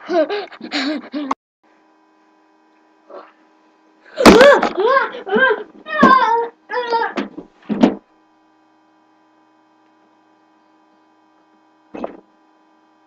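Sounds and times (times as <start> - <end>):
faint steady hum: 0.0 - 13.0
person yelling high-pitched cries: 4.2 - 7.2.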